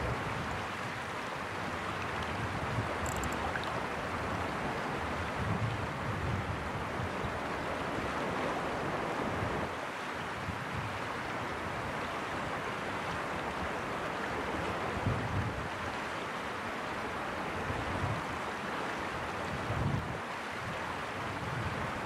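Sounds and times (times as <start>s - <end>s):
river water rushing over stones: 0.1s - 5.3s.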